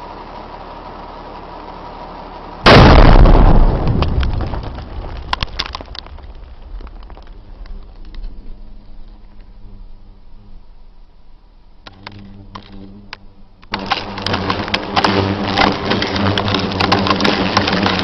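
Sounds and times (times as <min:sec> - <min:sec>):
explosion blast: 0:02.6 - 0:07.2
falling stones and debris: 0:02.7 - 0:08.2, 0:13.7 - 0:18.0.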